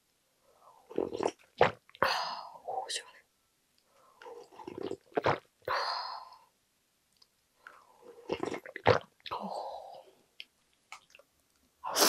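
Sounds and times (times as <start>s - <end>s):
person slurping broth: 0.9s - 1.8s, 8.0s - 9.0s.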